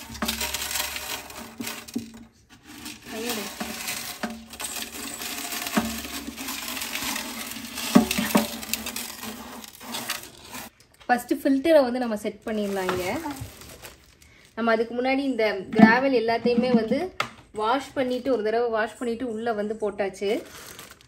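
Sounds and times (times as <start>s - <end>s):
gravel pouring into glass tank: 0.0s - 10.7s.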